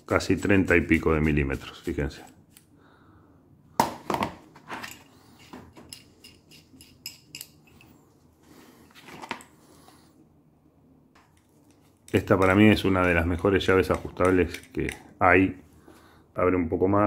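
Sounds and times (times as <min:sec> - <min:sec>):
metal wrenches clicking and knocking: 0:04.8 - 0:08.0.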